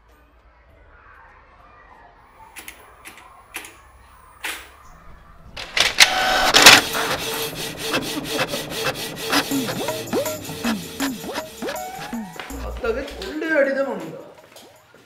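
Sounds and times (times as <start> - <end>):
office printer running: 5.5 - 12.2.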